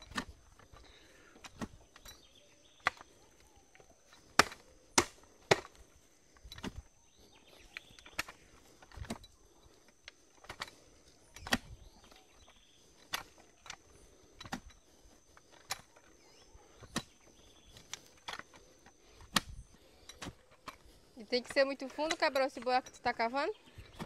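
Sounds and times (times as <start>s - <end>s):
post-hole digger striking soil: 0.0s - 0.8s, 1.4s - 2.2s, 4.1s - 6.9s, 7.7s - 9.3s, 11.3s - 13.5s, 14.2s - 14.9s, 16.7s - 18.6s, 19.2s - 20.8s.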